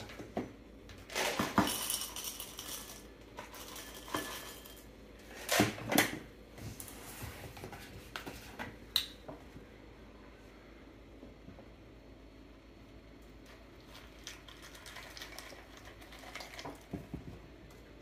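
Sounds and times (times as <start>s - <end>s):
cereal rattling into ceramic bowl: 1.1s - 4.9s.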